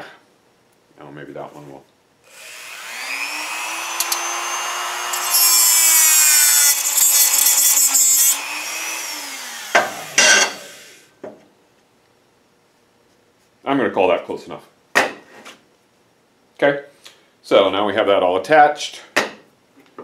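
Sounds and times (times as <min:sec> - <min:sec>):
rotary tool whining: 0:02.3 - 0:11.0
cutting wheel grinding metal: 0:02.4 - 0:10.8.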